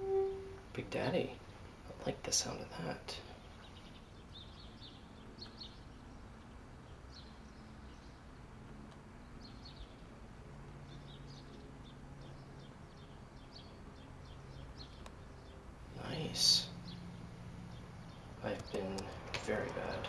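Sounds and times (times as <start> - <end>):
low room hum: 0.0 - 4.6
small birds chirping: 0.0 - 20.0.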